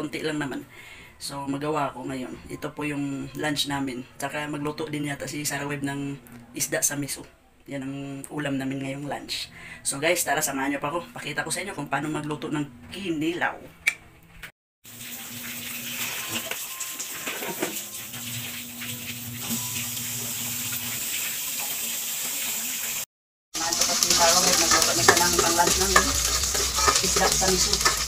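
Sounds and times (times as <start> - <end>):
sizzling hiss: 14.9 - 23.0, 23.6 - 28.0
kitchen clatter: 15.4 - 19.8, 23.6 - 28.0.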